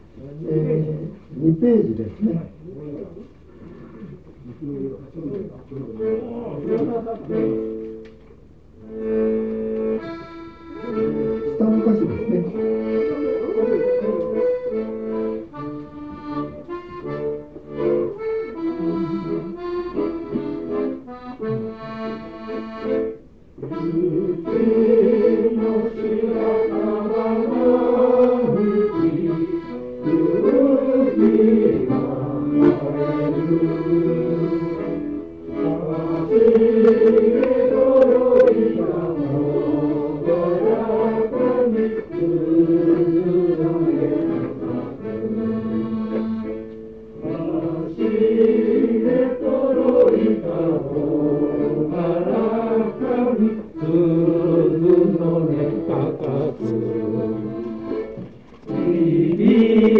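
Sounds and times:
accordion playing folk song: 0:05.9 - 0:59.9
group of people singing: 0:23.6 - 0:46.5, 0:47.2 - 0:58.0, 0:58.7 - 0:59.9.

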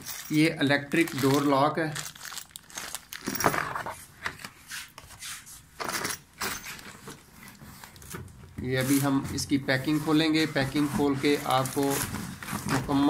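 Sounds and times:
plastic bag crinkling: 0:00.0 - 0:03.8
cardboard packaging rustling: 0:00.0 - 0:04.5, 0:06.7 - 0:13.0.

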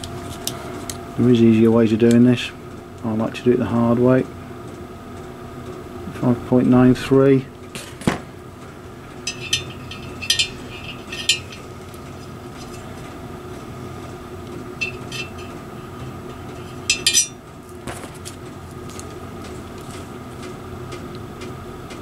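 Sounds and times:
light metallic clinks: 0:09.2 - 0:12.9, 0:14.8 - 0:15.6, 0:16.5 - 0:17.4.

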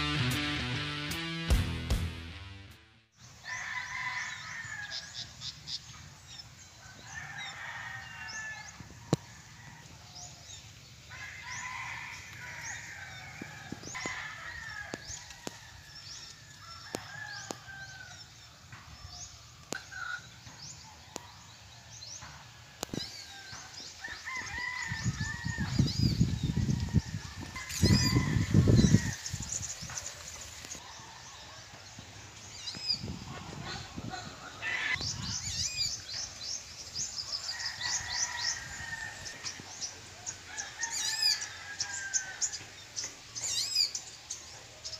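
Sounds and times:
small birds chirping: 0:10.1 - 0:44.9
domestic fowl calling: 0:33.3 - 0:35.0, 0:37.3 - 0:42.8.

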